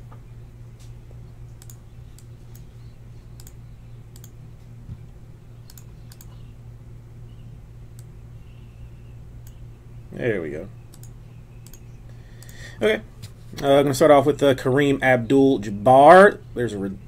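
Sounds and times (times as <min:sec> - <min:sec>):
steady low hum: 0:00.0 - 0:17.0
sharp clicks: 0:01.5 - 0:02.7, 0:03.4 - 0:04.4, 0:05.6 - 0:06.5, 0:10.9 - 0:12.6.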